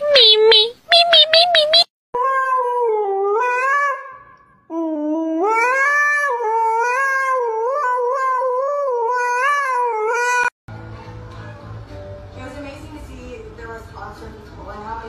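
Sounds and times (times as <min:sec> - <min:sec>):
dog howling into microphone: 0:02.2 - 0:11.8.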